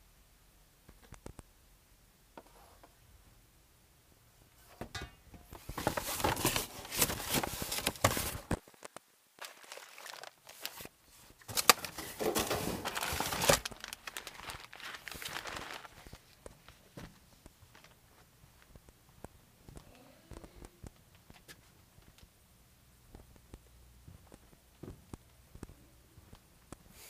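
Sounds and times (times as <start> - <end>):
plastic packaging crinkling: 5.5 - 16.8.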